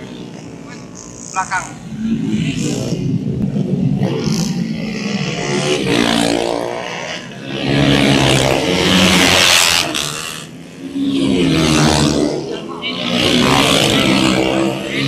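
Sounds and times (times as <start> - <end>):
racing motorcycles passing: 0.0 - 15.0.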